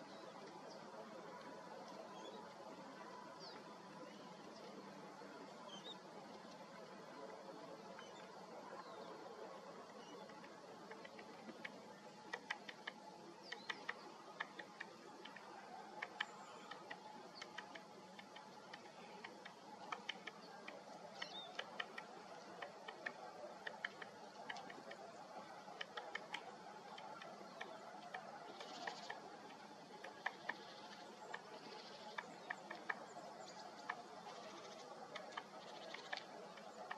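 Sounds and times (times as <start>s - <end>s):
woodpecker beak tapping: 9.9s - 25.0s, 25.7s - 36.9s.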